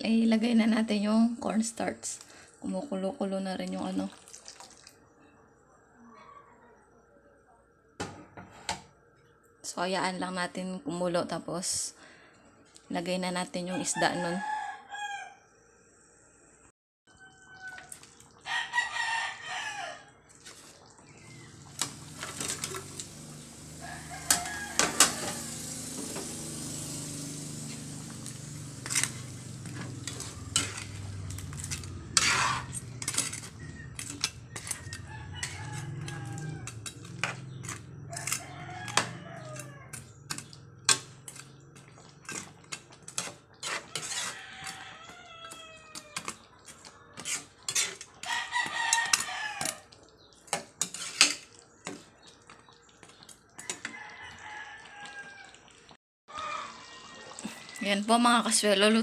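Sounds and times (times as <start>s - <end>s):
sauce bubbling: 3.7s - 5.0s, 17.1s - 59.0s
rooster crowing: 13.7s - 15.4s, 17.1s - 20.2s, 21.2s - 40.2s, 43.9s - 46.4s, 48.2s - 49.9s, 53.6s - 55.7s, 56.3s - 57.7s
metal spatula scraping a wok: 20.4s - 49.9s, 50.5s - 52.0s.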